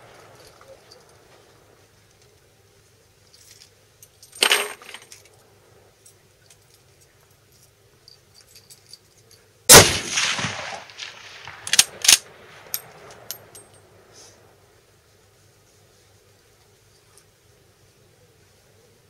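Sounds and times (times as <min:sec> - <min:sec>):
rifle shot: 0:09.7 - 0:13.5
rifle bolt clacks: 0:11.5 - 0:13.8.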